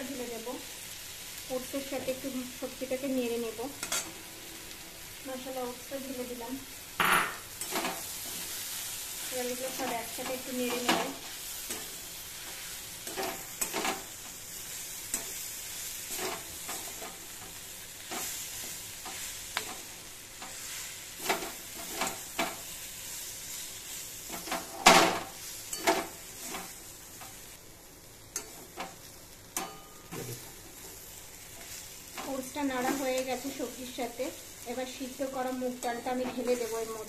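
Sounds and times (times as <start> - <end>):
frying sizzle: 0.0 - 37.0
metal spatula scraping a pan: 7.0 - 14.2, 15.1 - 27.4.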